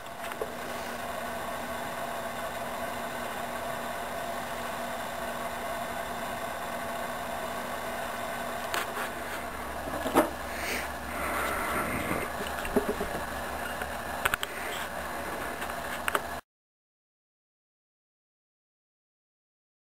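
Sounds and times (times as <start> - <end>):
steady mechanical hum: 0.0 - 16.4.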